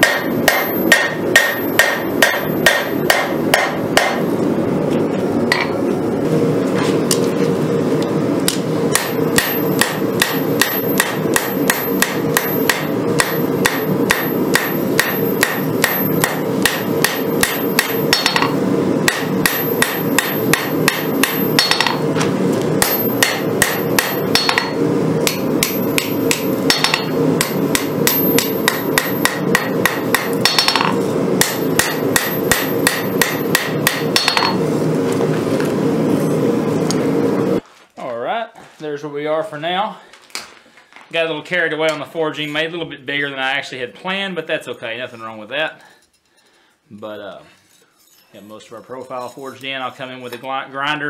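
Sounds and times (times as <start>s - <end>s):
hammer striking steel on anvil: 0.0s - 4.3s, 8.5s - 22.1s, 22.8s - 34.6s
low background hum: 0.0s - 51.0s.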